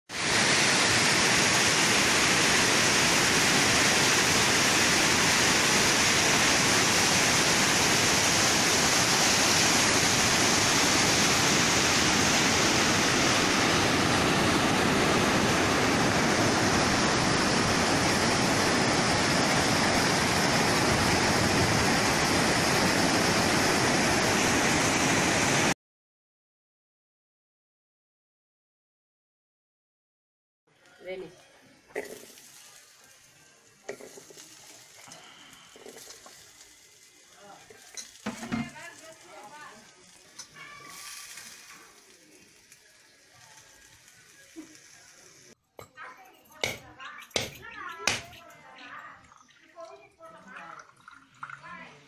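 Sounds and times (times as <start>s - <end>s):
water rushing through sluice gate: 0.2s - 25.8s.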